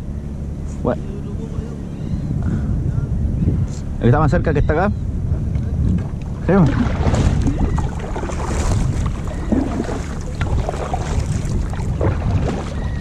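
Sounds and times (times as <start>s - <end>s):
wind buffeting microphone: 1.3s - 13.0s
sea water washing against kayak: 5.4s - 13.0s.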